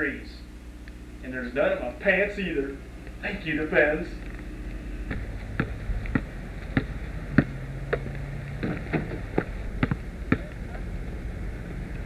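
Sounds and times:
basketball bouncing on asphalt: 5.1s - 10.6s.

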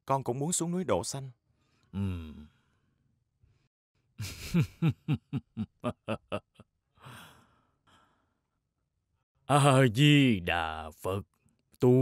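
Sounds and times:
man laughing heartily: 4.2s - 6.7s.

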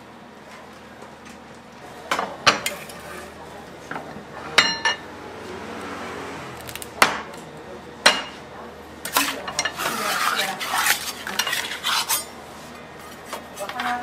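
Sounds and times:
metal scraping on steel: 9.1s - 12.3s.

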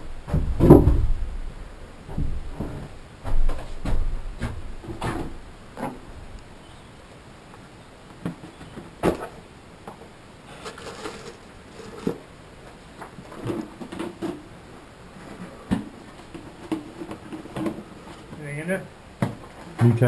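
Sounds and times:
rustling of gear: 10.5s - 12.3s.

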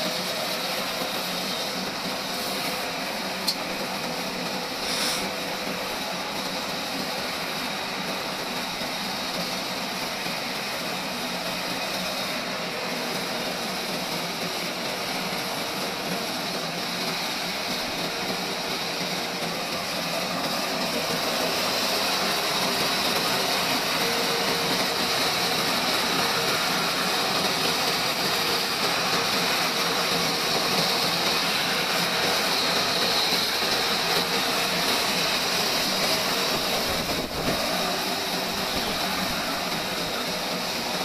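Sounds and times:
band saw cutting log: 4.8s - 5.3s.

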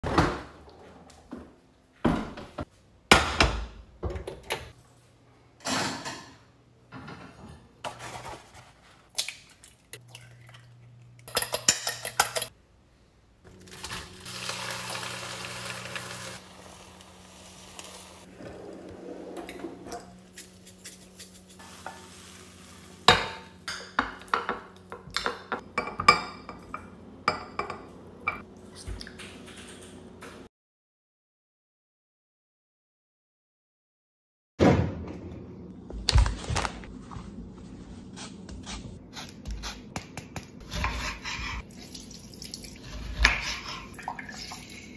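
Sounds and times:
dishes and utensils clattering: 5.6s - 8.1s, 11.2s - 12.5s
eggs sizzling in frying pan: 13.7s - 18.3s, 21.6s - 23.2s.

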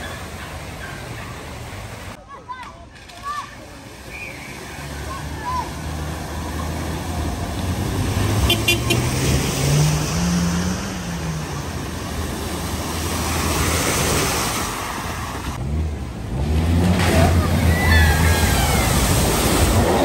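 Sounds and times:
water rushing and splashing: 0.0s - 2.2s, 3.5s - 20.0s
car engine revving: 4.8s - 20.0s.

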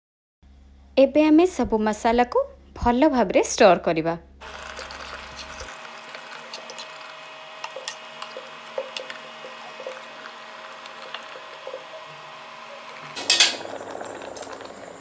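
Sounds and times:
spatula scraping and knocking pot: 13.2s - 13.7s.

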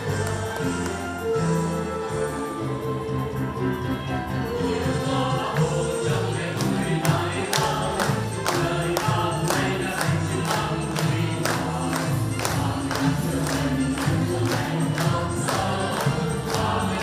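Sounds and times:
instrumental music with beat: 0.0s - 17.0s
choir singing: 4.3s - 17.0s.

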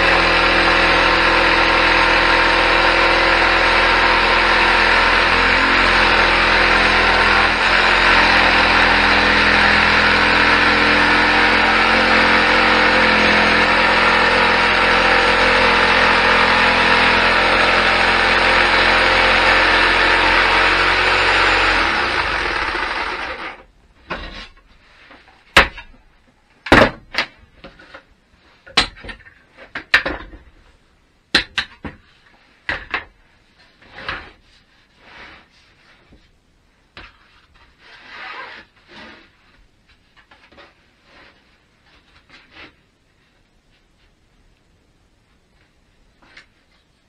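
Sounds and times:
jigsaw cutting board: 0.0s - 24.4s.

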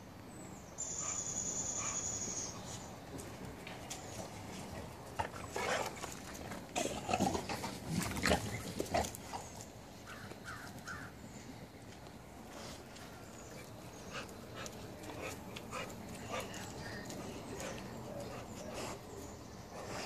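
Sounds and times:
puppies scuffling on dirt: 2.6s - 20.0s
puppies growling and snarling: 4.5s - 9.7s.

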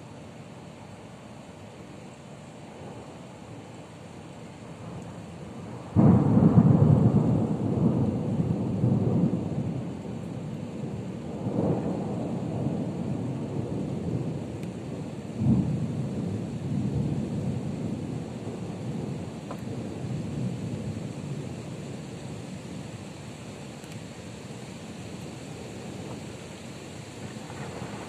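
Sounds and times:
thunder rumbling: 5.6s - 22.4s, 27.2s - 28.0s.

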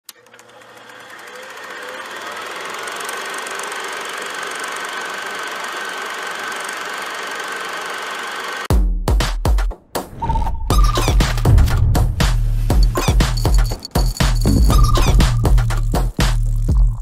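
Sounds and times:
machine running noise: 0.1s - 8.7s.

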